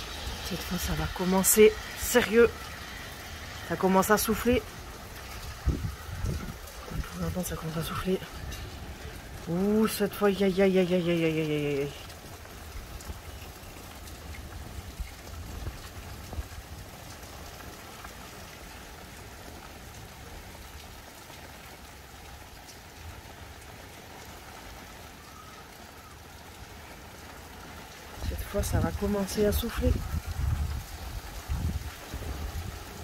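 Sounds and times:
wind rumble on microphone: 0.0 - 9.8, 12.6 - 17.8, 28.2 - 33.0
wind blowing: 0.0 - 20.5, 28.1 - 33.0
steady rain falling: 0.0 - 33.0.

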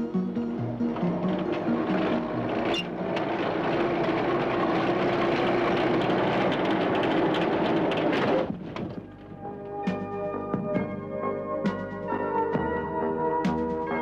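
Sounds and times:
vehicle engine running: 0.3 - 9.3.

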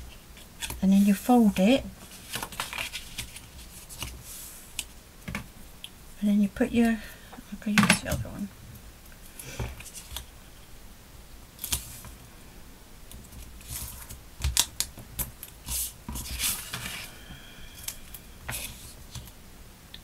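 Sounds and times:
card and tape rustling: 0.6 - 4.4.

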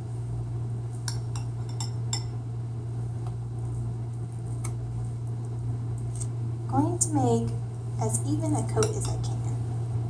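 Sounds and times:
steady low hum: 0.0 - 10.0
knife clinking against ceramic bowl: 1.1 - 2.4.

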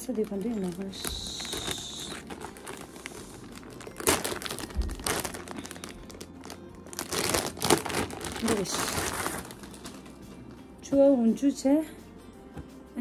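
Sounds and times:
gift packaging crinkling: 0.0 - 10.2.

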